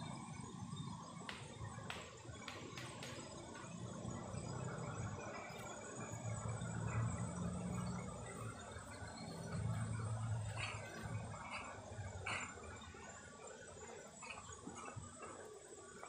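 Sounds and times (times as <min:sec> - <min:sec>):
insect drone: 0:00.0 - 0:16.0
low wavering hum: 0:00.0 - 0:16.0.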